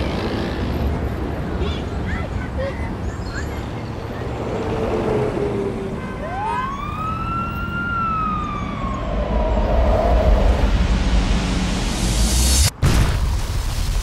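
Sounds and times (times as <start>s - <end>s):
city traffic noise: 0.0s - 12.8s
siren wail: 6.0s - 10.9s.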